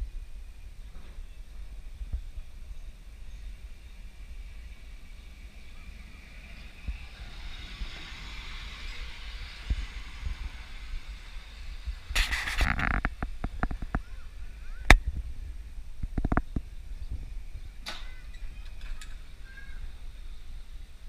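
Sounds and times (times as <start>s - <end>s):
electric tram passing: 0.0s - 21.0s
wheels clacking on rails: 0.8s - 15.0s.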